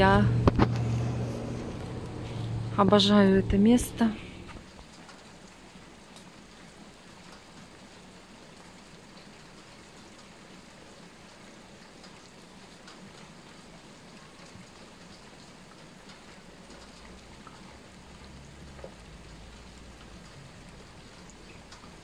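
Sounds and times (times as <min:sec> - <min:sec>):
low rumble: 0:00.0 - 0:04.7
rain patter: 0:00.0 - 0:22.0.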